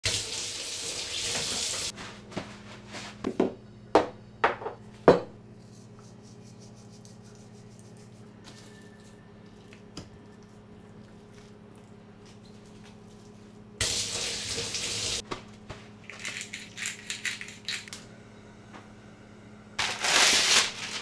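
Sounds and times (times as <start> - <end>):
low steady hum: 2.0 - 21.0
glass bottles knocking on countertop: 3.3 - 5.3.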